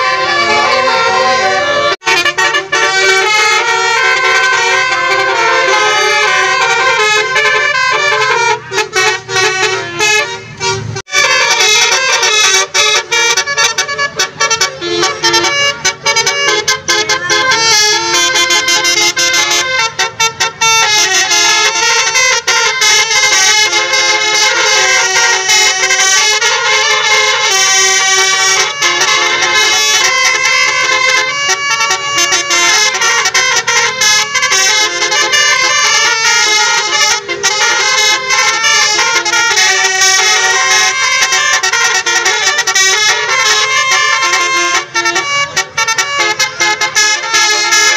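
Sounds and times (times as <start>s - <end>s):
musical air horns playing a melody: 0.0s - 47.9s.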